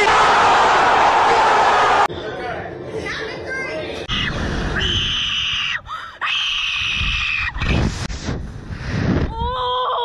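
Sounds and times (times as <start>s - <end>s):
wind on microphone: 6.9s - 9.6s.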